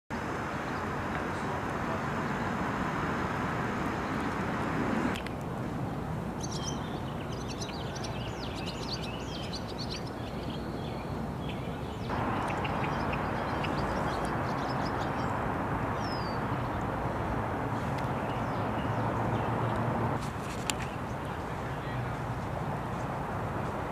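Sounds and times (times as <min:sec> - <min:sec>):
steady outdoor noise: 0:00.1 - 0:23.9
birds chirping and whistling: 0:06.4 - 0:15.4, 0:16.0 - 0:16.8.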